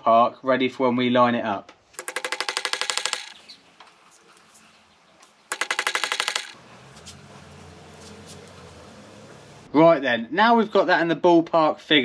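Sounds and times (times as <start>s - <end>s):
ratchet wrench clicking: 2.0s - 3.4s, 5.5s - 6.6s.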